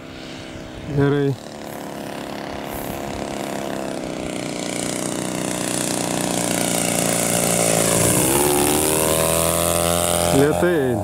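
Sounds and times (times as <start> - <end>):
model plane engine and propeller: 0.0 - 11.0.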